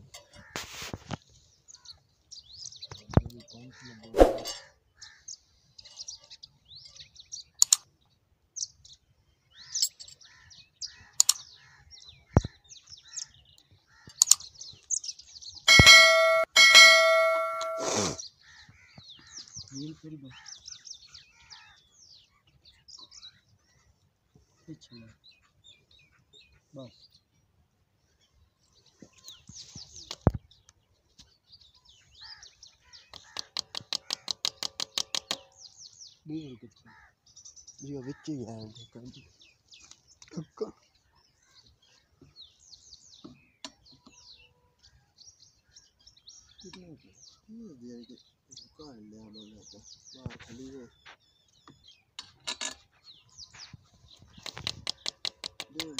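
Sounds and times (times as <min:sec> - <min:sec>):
small birds chirping: 0:00.0 - 0:55.9
sharp clicks: 0:07.6 - 0:07.8, 0:11.2 - 0:11.4, 0:33.1 - 0:35.4
sharp metallic click: 0:07.6 - 0:07.8, 0:11.2 - 0:11.4, 0:15.7 - 0:18.0
bell ring sound effect: 0:15.7 - 0:18.2.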